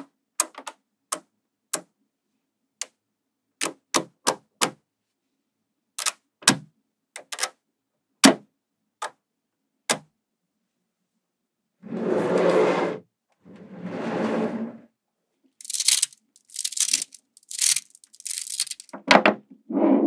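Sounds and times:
magnetic balls clicking together: 0:06.0 - 0:06.2, 0:15.6 - 0:19.0.

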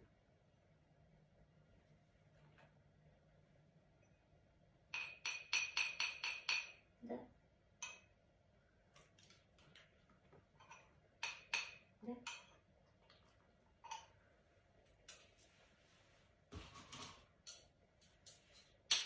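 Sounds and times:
metal spoon clinking on glass jar: 0:04.9 - 0:06.9, 0:10.6 - 0:12.6.

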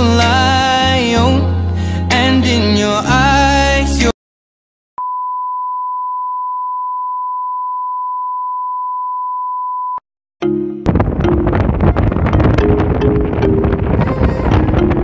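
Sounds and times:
song with singing: 0:00.0 - 0:04.2
steady pure test tone beep: 0:05.0 - 0:10.0.

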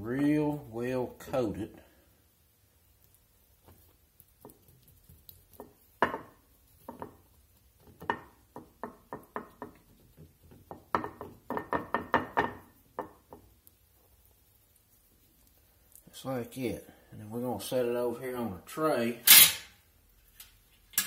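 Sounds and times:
hands patting meat in flour: 0:02.7 - 0:16.2.

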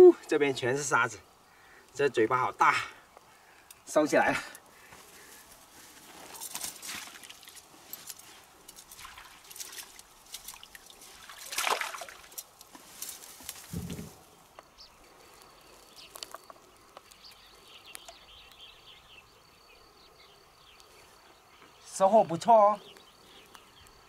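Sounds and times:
insect chirps: 0:00.0 - 0:24.0
faint high insect buzz: 0:04.7 - 0:21.9
net rustles and clicks: 0:05.0 - 0:14.4
water trickling and splashing: 0:06.3 - 0:13.8
rush of water: 0:08.9 - 0:12.4
dull thump: 0:13.6 - 0:14.2.

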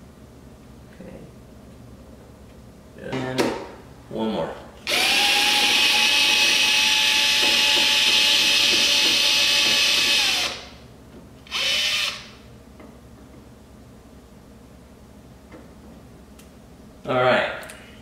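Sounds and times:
cordless screw gun whining: 0:04.8 - 0:10.8, 0:11.5 - 0:12.4.

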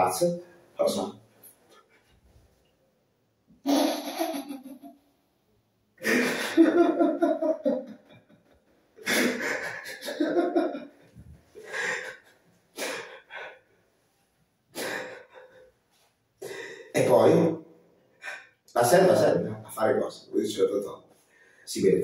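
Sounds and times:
man laughing wheezily: 0:06.0 - 0:08.2, 0:09.0 - 0:11.0, 0:11.6 - 0:13.6.

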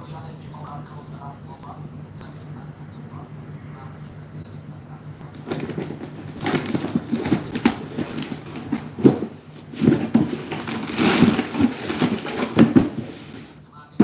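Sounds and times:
cardboard rustling and scraping: 0:05.3 - 0:13.6
knocks and thumps: 0:05.4 - 0:14.0.

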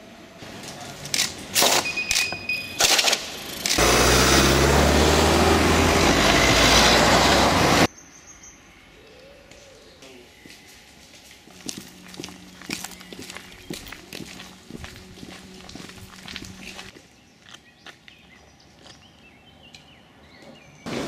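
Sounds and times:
car driving past: 0:03.8 - 0:07.9.

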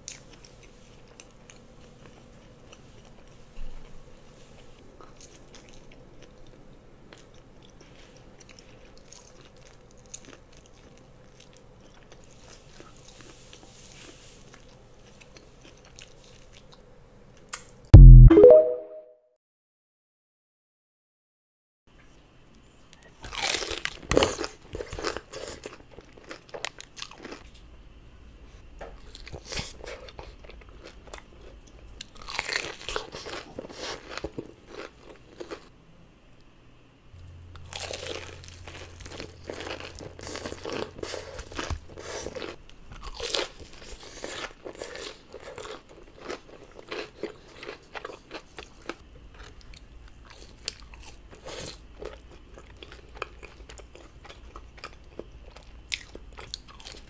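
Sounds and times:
chewing: 0:37.6 - 0:57.0.

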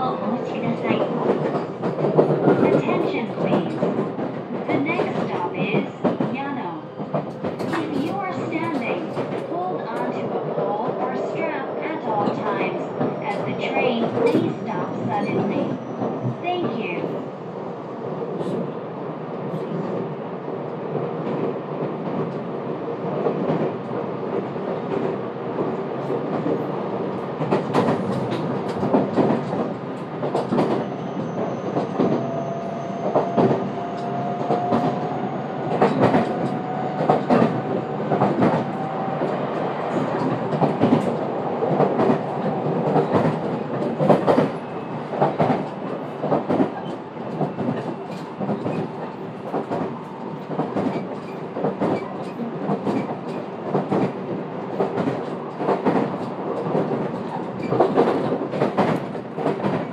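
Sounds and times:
train running rumble: 0:21.0 - 0:59.9.

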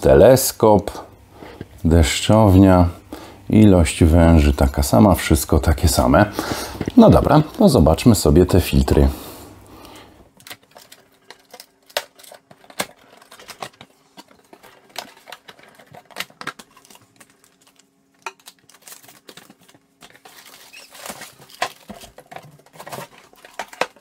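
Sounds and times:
plastic wrap crinkling: 0:10.3 - 0:24.0.

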